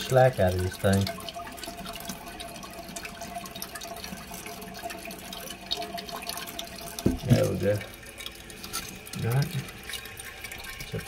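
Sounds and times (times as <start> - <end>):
water hissing into toilet tank: 0.0 - 11.0.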